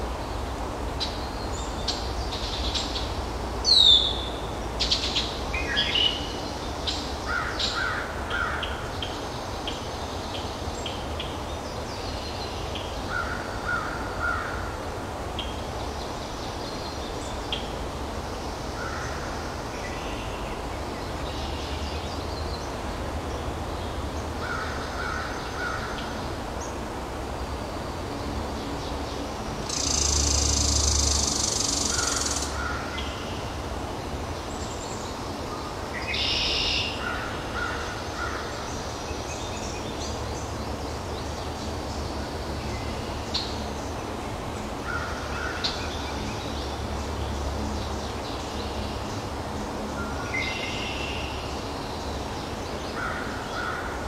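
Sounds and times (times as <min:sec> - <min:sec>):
birds chirping and calling: 0:29.7 - 0:33.3.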